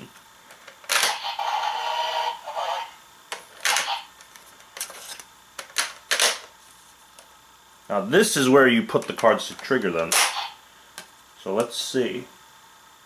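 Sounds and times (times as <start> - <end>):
toy electronic sound effect: 0.9 - 3.0, 3.7 - 4.1, 10.1 - 10.6.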